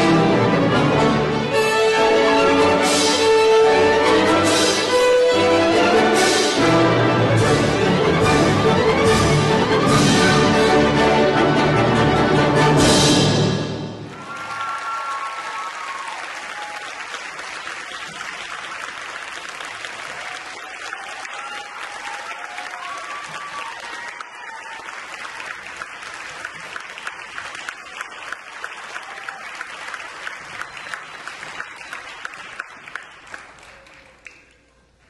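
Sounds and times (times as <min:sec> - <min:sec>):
audience applauding: 0:14.1 - 0:35.0.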